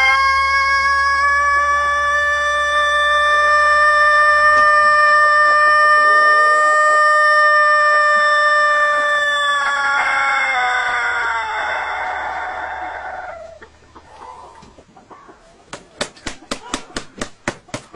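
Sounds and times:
rooster crowing: 0:00.0 - 0:13.6.

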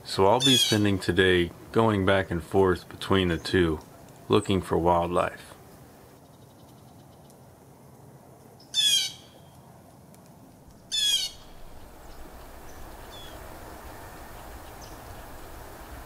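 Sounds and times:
steady background noise: 0:00.0 - 0:16.0
bird calling harshly: 0:00.4 - 0:00.8, 0:08.7 - 0:09.4, 0:10.8 - 0:16.0
faint high bird chirps: 0:10.9 - 0:16.0.

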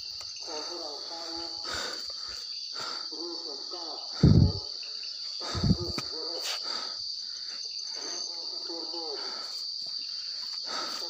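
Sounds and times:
crickets chirring: 0:00.0 - 0:11.0.

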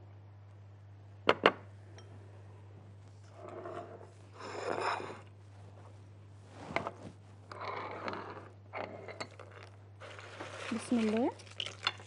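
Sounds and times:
low electrical hum: 0:00.0 - 0:12.0
scraping and rustling: 0:09.4 - 0:11.8.

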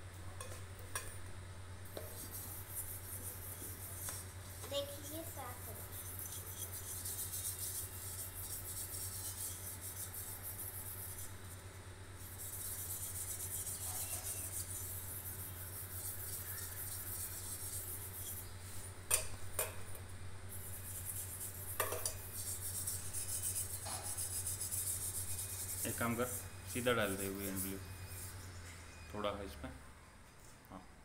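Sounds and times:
scrub pad scrubbing metal pot: 0:04.7 - 0:11.3.

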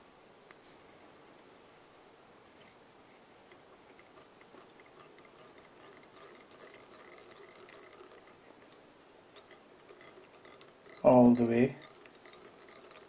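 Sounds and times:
light clicks and ticks: 0:03.5 - 0:13.0.

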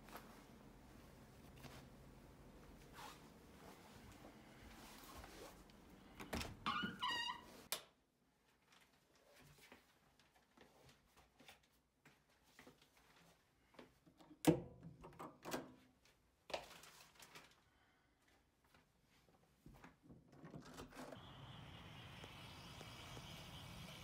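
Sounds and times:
outdoor background noise: 0:20.3 - 0:24.0.

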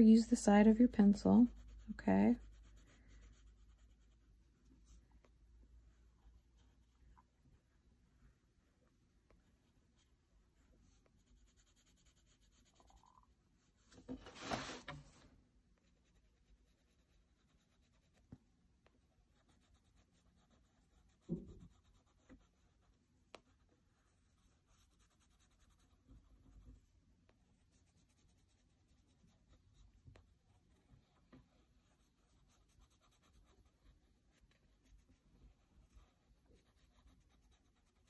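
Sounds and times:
colored pencil scratching on paper: 0:00.0 - 0:05.1, 0:06.0 - 0:15.2, 0:15.8 - 0:38.0
sketchbook paper swish: 0:14.1 - 0:15.1.

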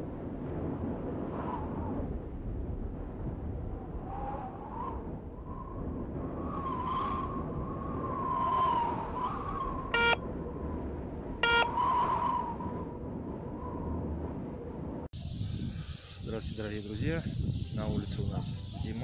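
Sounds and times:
wind blowing: 0:00.0 - 0:19.0
short electronic beeps: 0:10.0 - 0:10.2, 0:11.4 - 0:11.7
wavering high whistle: 0:11.4 - 0:12.7.

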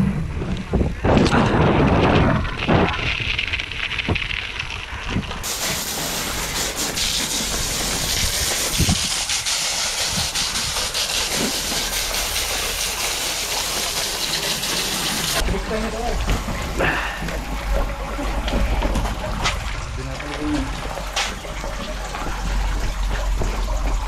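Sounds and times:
wind on microphone: 0:00.0 - 0:05.5, 0:07.6 - 0:11.0
bike tyres rolling over gravel: 0:00.0 - 0:09.0, 0:13.5 - 0:24.0
hose spraying water: 0:05.4 - 0:24.0.

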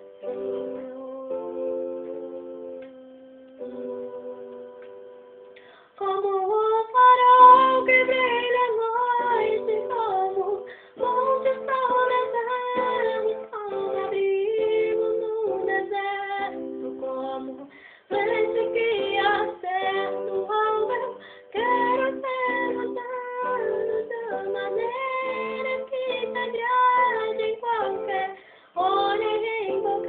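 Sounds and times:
girl singing worship song: 0:00.0 - 0:05.0, 0:05.6 - 0:30.0
backing track of sustained chords: 0:00.0 - 0:06.0.

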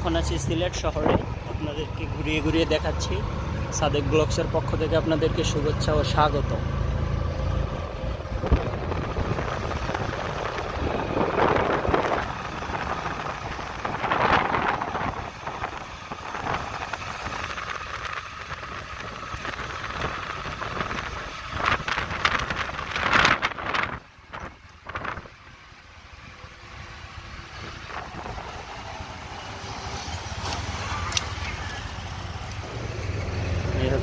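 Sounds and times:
auto-rickshaw engine: 0:00.0 - 0:34.0
road noise: 0:00.0 - 0:34.0
wind buffeting microphone: 0:07.6 - 0:25.4, 0:27.4 - 0:29.2.

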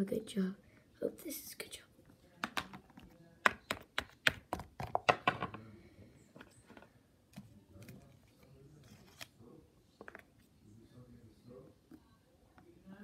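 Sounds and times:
plastic toy tapping on book: 0:02.4 - 0:02.8, 0:03.4 - 0:05.5.

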